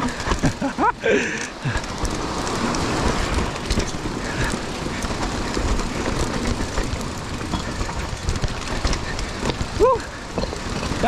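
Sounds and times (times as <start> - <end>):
bike clicks and rattles: 0.0 - 11.0
bike tyres rumbling on dirt: 0.0 - 11.0.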